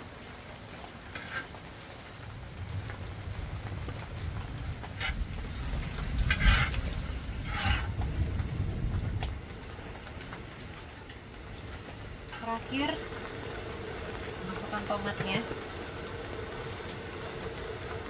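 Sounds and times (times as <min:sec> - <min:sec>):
food sizzling in a pan: 0:00.0 - 0:08.6, 0:10.6 - 0:18.0
wooden spatula scraping a pan: 0:01.1 - 0:01.6, 0:04.8 - 0:08.0.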